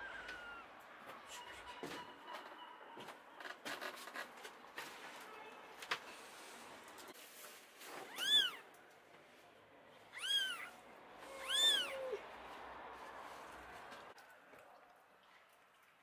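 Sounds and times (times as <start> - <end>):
kitten mewing: 8.1 - 8.6, 10.1 - 12.2.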